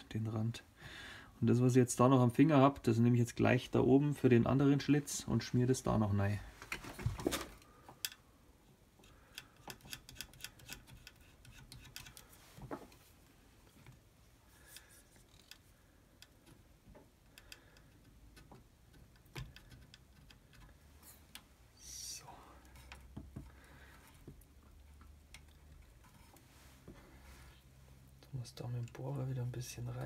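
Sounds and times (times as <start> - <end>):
small clicks and light taps: 14.6 - 21.6, 22.6 - 26.5.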